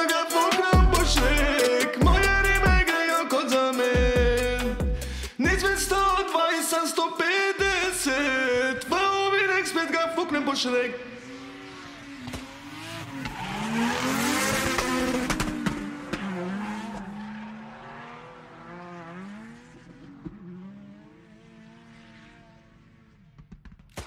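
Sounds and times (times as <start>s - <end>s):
car engine revving: 0.0s - 2.9s, 8.9s - 23.6s.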